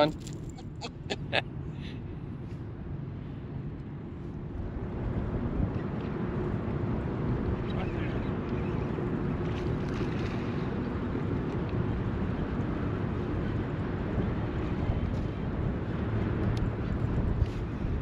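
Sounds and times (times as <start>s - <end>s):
wind rumble: 0.0s - 18.0s
river water moving: 8.5s - 18.0s.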